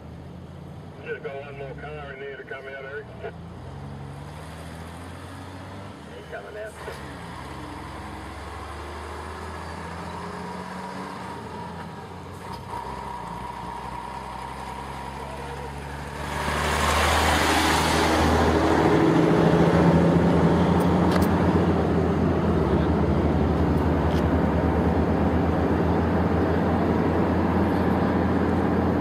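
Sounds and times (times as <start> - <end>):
truck engine running: 0.0 - 29.0.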